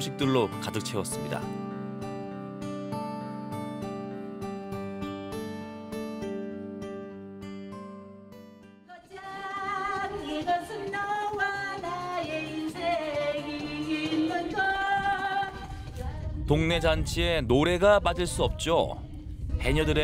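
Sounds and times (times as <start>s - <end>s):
acoustic guitar music: 0.0s - 16.0s
backing music: 0.0s - 20.0s
woman singing into a microphone: 8.9s - 16.5s.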